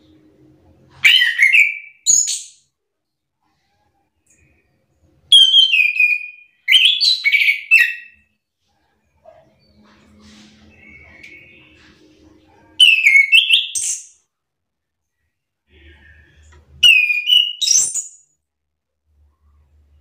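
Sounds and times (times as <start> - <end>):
thrush singing whistled phrases: 5.3 - 8.2, 16.8 - 18.2.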